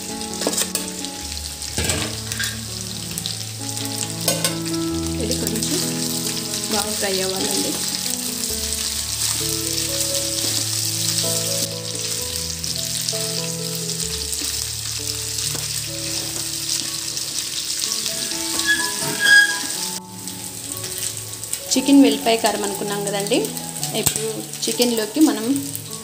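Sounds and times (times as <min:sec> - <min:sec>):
spatula turning food in pan: 0:00.0 - 0:24.4
chicken sizzling in oil: 0:00.0 - 0:26.0
soft background music: 0:00.0 - 0:26.0.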